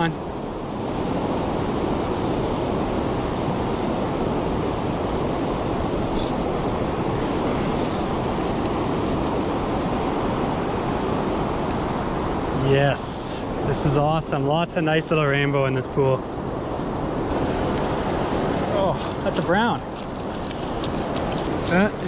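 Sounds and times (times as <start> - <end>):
river water rushing: 0.0 - 22.0.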